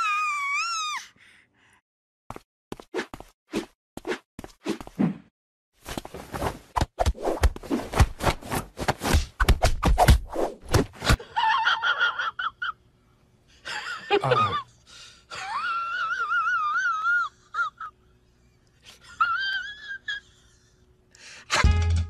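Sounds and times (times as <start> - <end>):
woman squealing: 0.0 - 1.0.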